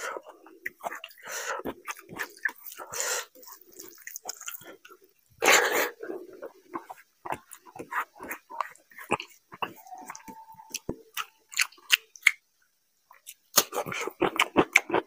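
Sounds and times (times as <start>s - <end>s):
wet chewing and lip smacking: 0.2s - 5.0s, 6.3s - 12.4s, 13.1s - 15.0s.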